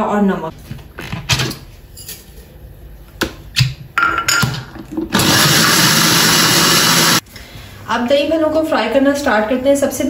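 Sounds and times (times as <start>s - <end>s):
blender running at full speed: 5.1s - 7.2s.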